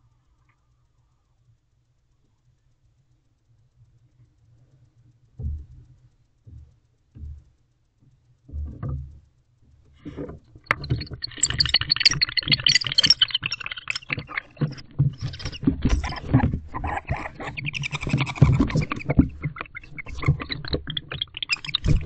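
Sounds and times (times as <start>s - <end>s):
high scratchy clicks: 10.1s - 22.0s.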